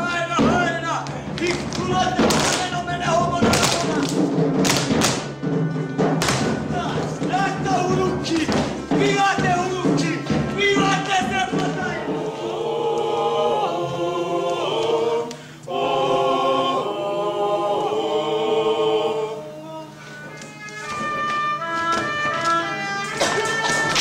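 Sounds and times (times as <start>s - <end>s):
voices singing chords: 5.9s - 24.0s.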